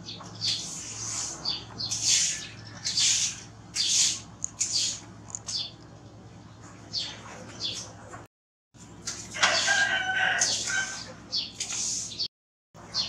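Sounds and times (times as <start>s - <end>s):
rooster crowing: 9.3s - 11.1s.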